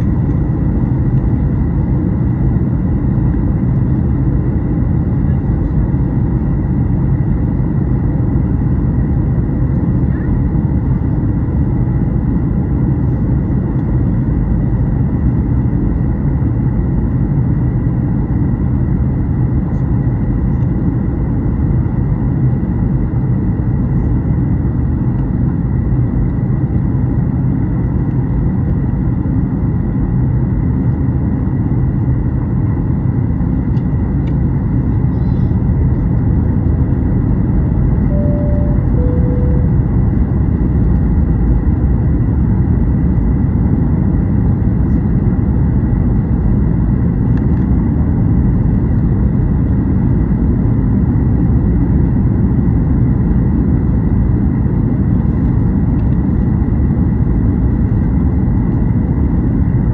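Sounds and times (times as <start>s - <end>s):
airplane cabin roar: 0.0s - 59.9s
faint high whine: 38.0s - 40.5s.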